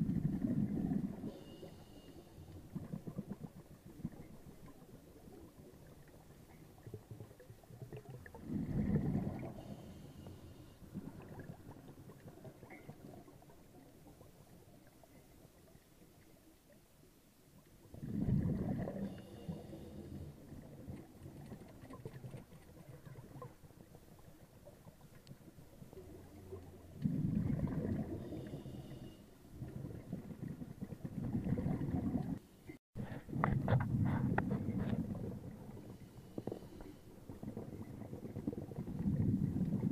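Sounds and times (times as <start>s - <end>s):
diver's exhaled bubbles: 0.0s - 1.4s, 2.6s - 9.9s, 10.9s - 13.7s, 17.9s - 24.0s, 25.9s - 28.9s, 29.5s - 32.4s, 33.0s - 39.9s
faint underwater crackling: 0.0s - 39.9s.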